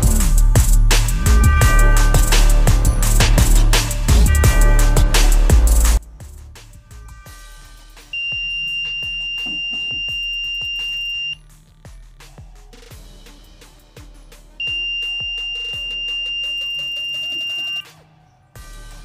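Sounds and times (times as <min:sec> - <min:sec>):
faint background music: 0:05.9 - 0:19.0
high-pitched alarm buzzer: 0:08.1 - 0:11.4, 0:14.6 - 0:17.8.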